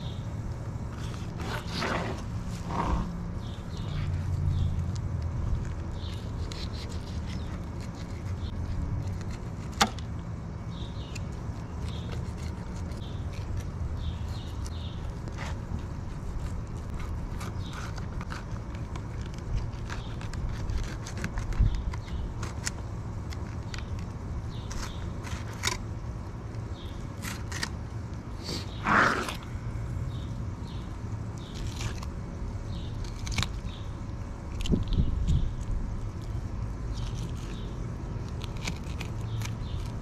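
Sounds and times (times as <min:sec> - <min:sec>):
knife scraping fish bone: 0:06.0 - 0:09.9, 0:11.1 - 0:22.7.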